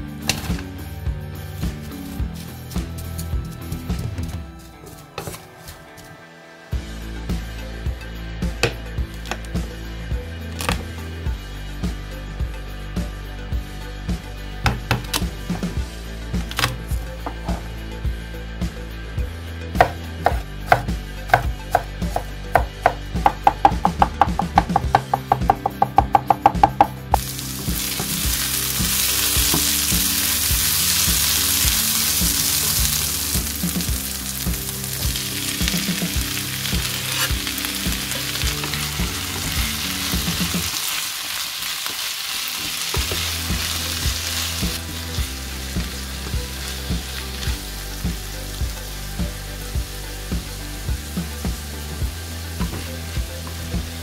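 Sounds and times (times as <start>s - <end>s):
knife chopping on wooden board: 8.6s - 9.4s, 19.8s - 26.9s
onions sizzling in a pan: 27.2s - 54.0s.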